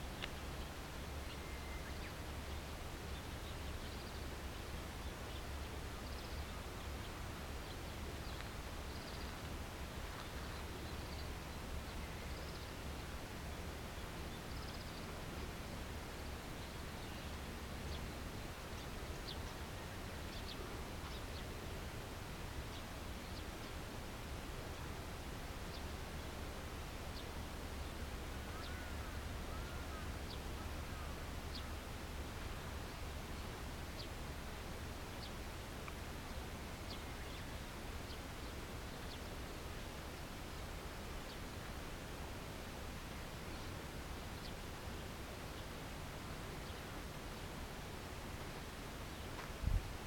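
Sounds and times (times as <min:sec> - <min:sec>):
faint bird chirps: 0:00.1 - 0:02.2.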